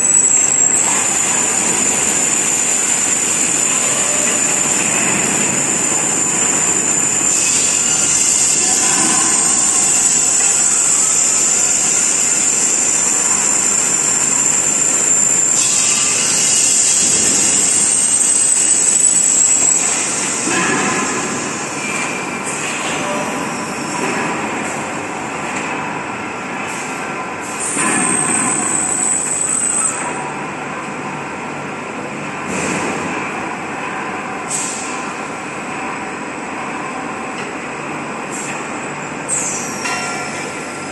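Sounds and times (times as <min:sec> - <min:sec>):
falling whistle: 0:00.0 - 0:20.1
production line noise: 0:00.0 - 0:40.9
compressed air hissing: 0:06.4 - 0:20.5.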